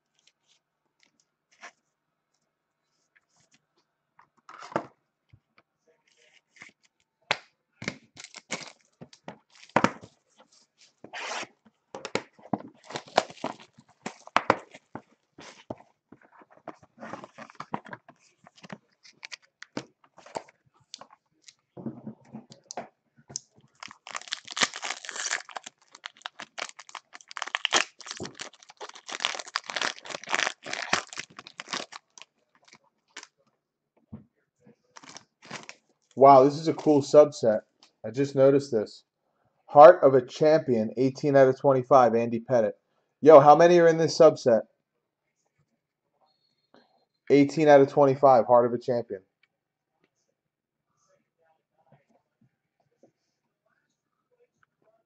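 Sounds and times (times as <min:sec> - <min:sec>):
foil wrapper crinkling: 0:08.2 - 0:08.9, 0:12.8 - 0:15.7, 0:17.1 - 0:19.8, 0:23.7 - 0:33.3, 0:35.0 - 0:35.8.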